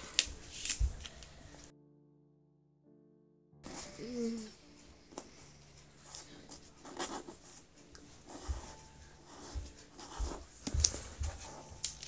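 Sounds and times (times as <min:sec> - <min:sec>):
paper rustling and scraping: 0:00.0 - 0:01.7.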